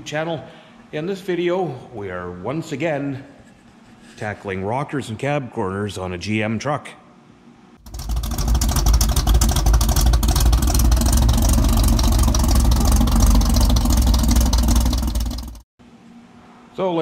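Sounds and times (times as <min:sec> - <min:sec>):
car engine rumbling: 0:07.8 - 0:15.6.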